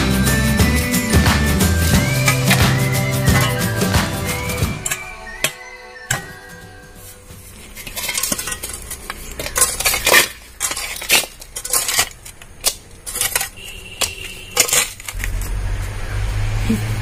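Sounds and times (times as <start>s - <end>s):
hoe chopping stony soil: 1.3s - 6.3s
blade clinking on metal pan: 3.3s - 3.9s.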